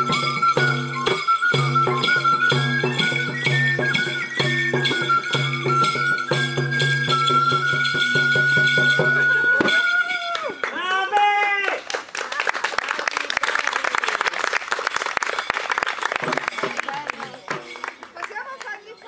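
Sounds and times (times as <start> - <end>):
live folk music: 0.0 - 10.9, 16.0 - 19.0.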